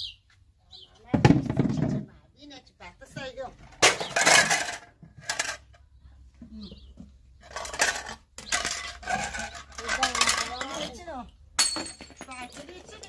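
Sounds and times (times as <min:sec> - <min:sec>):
household things clattering: 0:03.6 - 0:05.8, 0:07.4 - 0:13.0.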